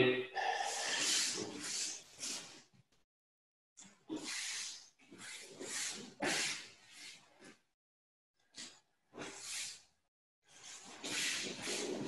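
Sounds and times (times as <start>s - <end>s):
wooden sword swishing: 10.8s - 12.0s.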